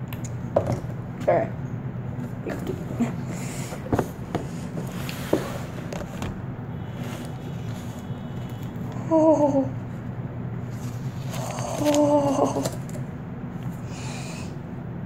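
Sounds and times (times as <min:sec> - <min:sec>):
cardboard box scrapes and knocks: 0:03.9 - 0:06.2.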